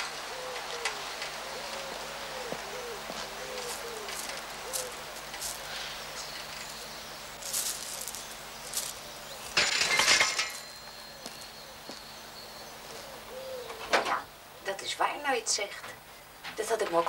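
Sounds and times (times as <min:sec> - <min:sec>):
bicycle clattering onto ground: 0:09.5 - 0:10.8.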